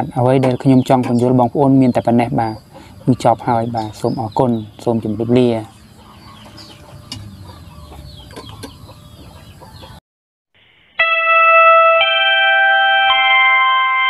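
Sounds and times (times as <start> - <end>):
faint birds calling: 0.0 - 10.0
electronic keyboard jingle: 10.9 - 14.0.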